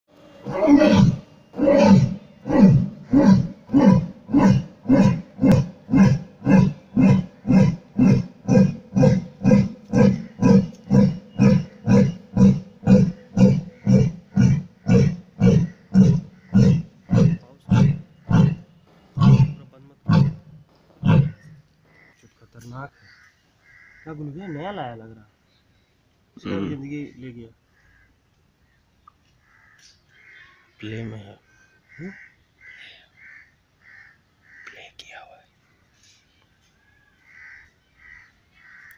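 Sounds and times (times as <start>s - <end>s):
lion grunting roars: 0.4s - 18.6s, 19.2s - 21.6s
lion roaring: 0.4s - 18.6s, 19.2s - 21.6s.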